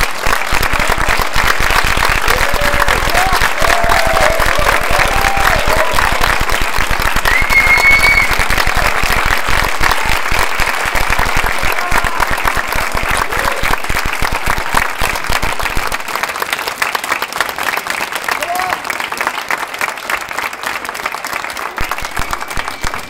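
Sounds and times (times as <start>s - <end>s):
audience applauding: 0.0s - 23.0s
high call from crowd: 2.2s - 6.3s, 7.2s - 9.0s.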